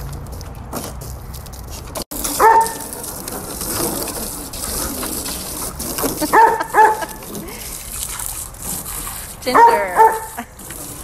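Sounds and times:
garden hose spraying water: 2.1s - 11.0s
dog barking: 2.4s - 2.8s, 6.3s - 7.1s, 9.5s - 10.4s.

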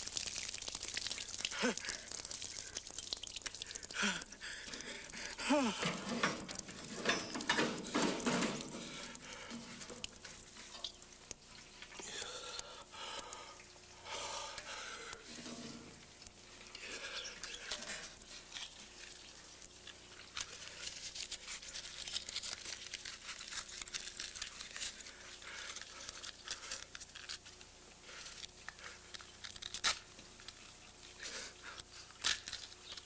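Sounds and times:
gasoline pouring and splashing: 0.0s - 29.5s.

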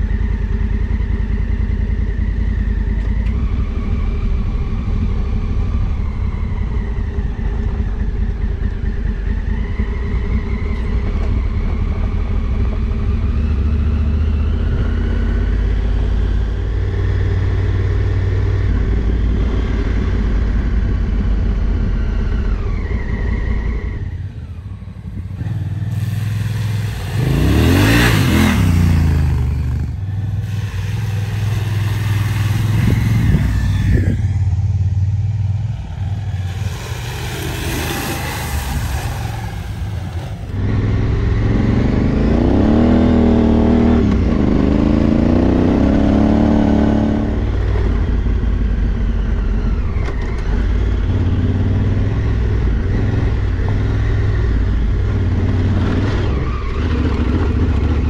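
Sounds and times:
motorcycle engine running: 24.0s - 58.0s.

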